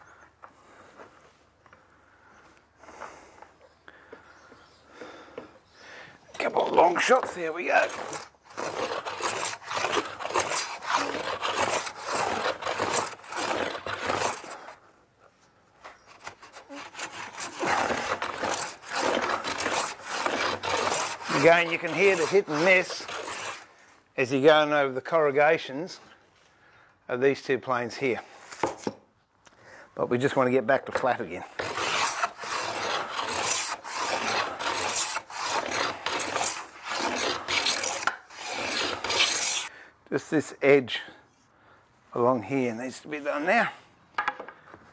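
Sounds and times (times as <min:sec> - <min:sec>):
hand plane shaving wood: 0:06.4 - 0:14.8, 0:16.0 - 0:23.7, 0:30.9 - 0:39.7.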